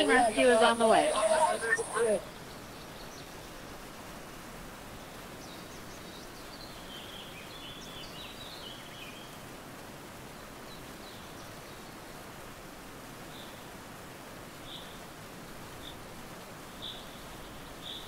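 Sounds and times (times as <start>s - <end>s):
birds chirping: 0.0s - 3.5s
steady outdoor noise: 0.0s - 18.0s.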